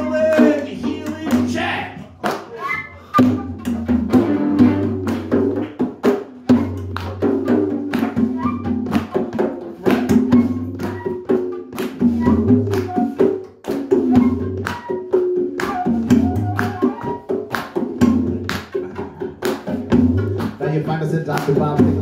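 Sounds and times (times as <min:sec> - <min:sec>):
hand drum strikes: 0:03.2 - 0:20.6.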